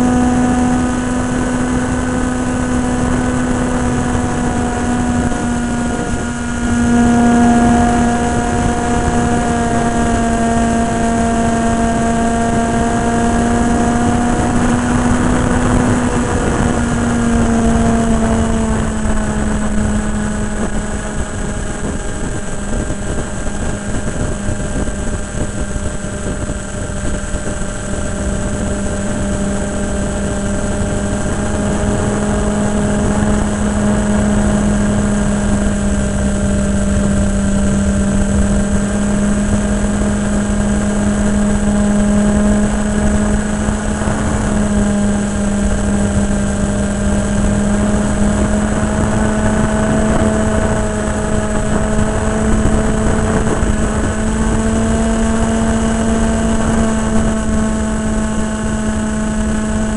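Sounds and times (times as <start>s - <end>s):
model plane motor drone: 0.0s - 59.9s
wind rush over microphone: 0.0s - 59.9s.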